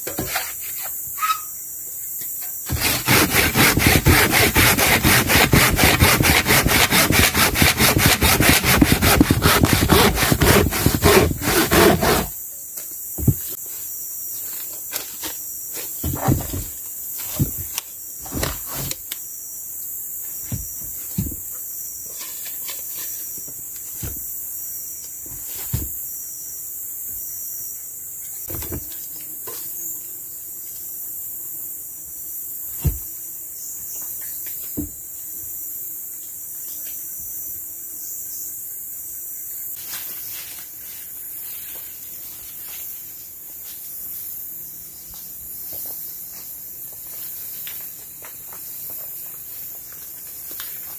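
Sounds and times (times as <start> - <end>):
insects chorus: 0.0 - 7.1, 7.9 - 50.9
wooden boards knocking: 2.7 - 12.3.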